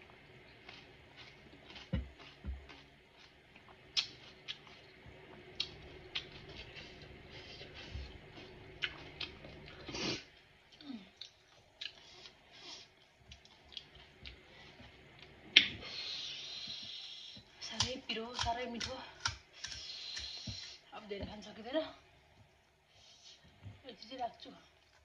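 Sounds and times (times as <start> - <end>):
person chewing crunchy food: 0.1 - 15.4.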